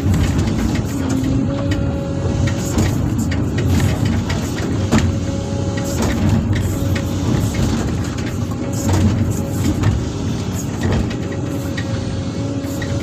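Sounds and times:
excavator diesel engine: 0:00.0 - 0:13.0
hydraulic whine: 0:00.0 - 0:13.0.

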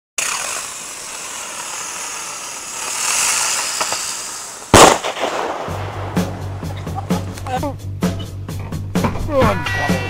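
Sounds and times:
firework bang: 0:00.2 - 0:07.3
firework hissing: 0:00.2 - 0:07.4.

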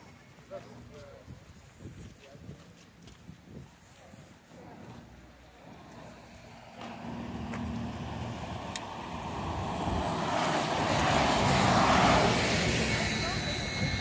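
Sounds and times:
bus driving past: 0:05.0 - 0:14.0.

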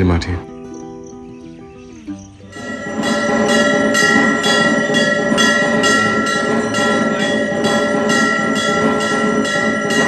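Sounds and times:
bells ringing: 0:02.5 - 0:10.0.

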